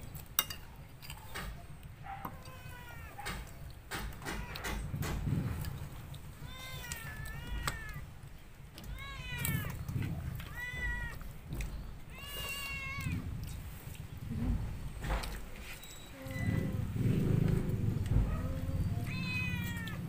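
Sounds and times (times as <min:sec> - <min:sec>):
cat meowing: 0:02.1 - 0:03.5, 0:04.2 - 0:05.0, 0:06.3 - 0:08.2, 0:08.8 - 0:11.4, 0:12.0 - 0:13.4, 0:18.2 - 0:20.0.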